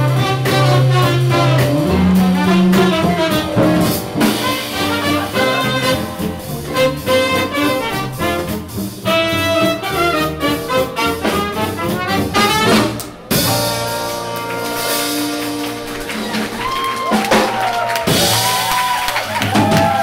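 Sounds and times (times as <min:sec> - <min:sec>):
swing jazz band playing: 0:00.0 - 0:18.8
audience cheering and applauding: 0:14.4 - 0:20.0.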